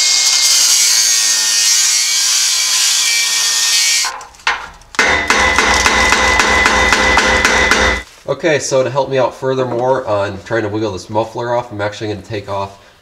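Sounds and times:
cutoff wheel cutting metal: 0.0s - 4.2s.

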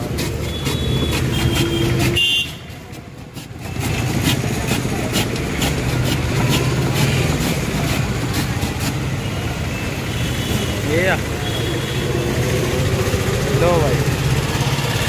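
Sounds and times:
street traffic noise: 0.0s - 15.0s
vehicle horn toot: 0.5s - 2.7s.

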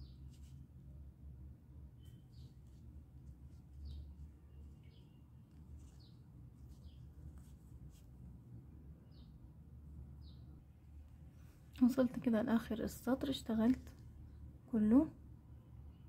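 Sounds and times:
low steady hum: 0.0s - 16.0s
small bird chirping: 2.0s - 2.8s, 3.5s - 7.5s, 10.2s - 10.6s.

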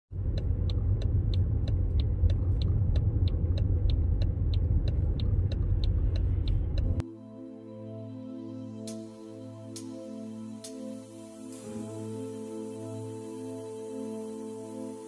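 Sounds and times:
vehicle rumble: 0.0s - 7.0s
sharp even ticking: 0.1s - 7.0s.

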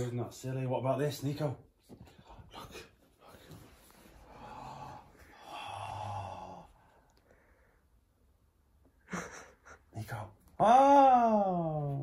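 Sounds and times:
breathy exhalations: 2.2s - 7.9s.

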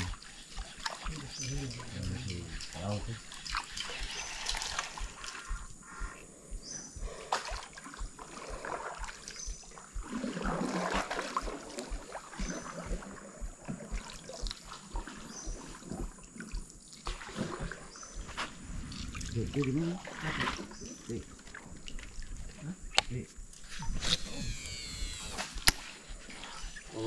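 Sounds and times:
water splashing and trickling: 0.0s - 5.6s, 7.3s - 23.3s
soft low knocks: 4.9s - 16.8s.

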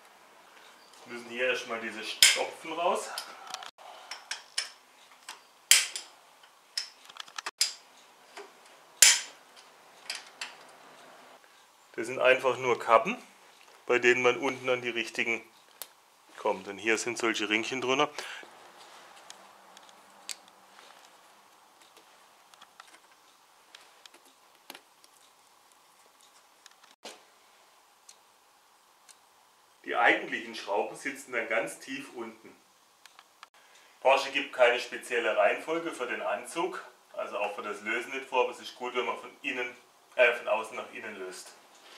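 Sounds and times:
small ticks: 19.2s - 27.0s.

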